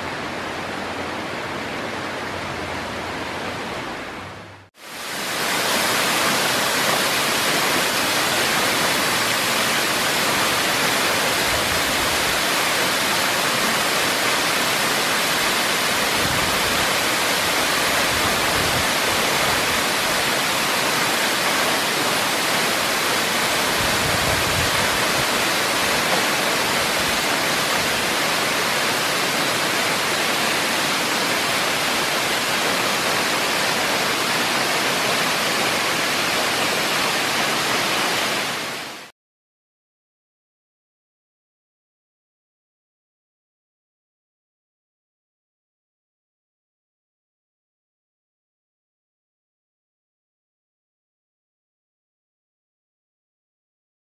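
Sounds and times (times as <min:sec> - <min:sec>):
waterfall rushing onto rocks: 0:04.8 - 0:39.1.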